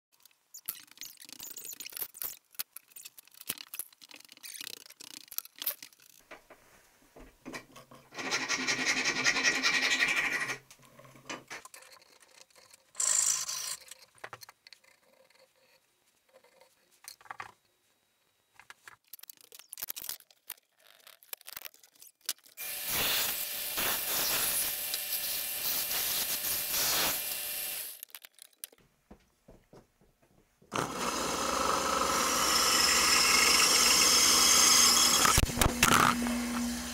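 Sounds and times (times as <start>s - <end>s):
power tool running: 22.6s - 28.0s, 30.7s - 36.9s
workshop machine running: 22.6s - 28.0s, 30.8s - 36.9s.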